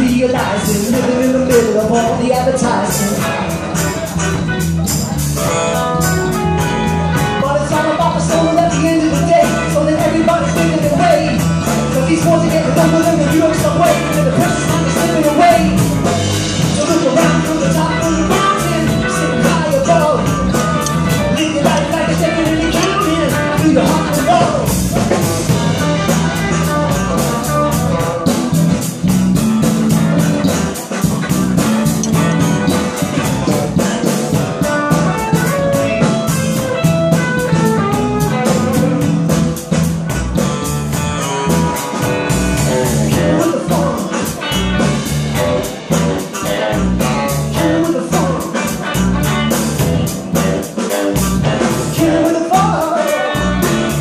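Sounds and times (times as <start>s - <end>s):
man singing into a microphone: 0.0s - 4.0s, 7.4s - 24.8s, 42.8s - 44.5s, 47.0s - 49.0s, 51.8s - 54.0s
drum kit beat: 0.0s - 54.0s
electric bass: 0.0s - 54.0s
electric guitar: 0.0s - 54.0s.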